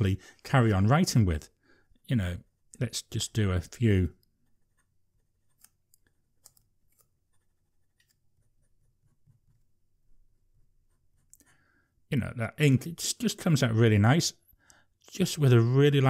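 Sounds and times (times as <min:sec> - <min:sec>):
fountain pen scratching on paper: 0:04.3 - 0:11.3.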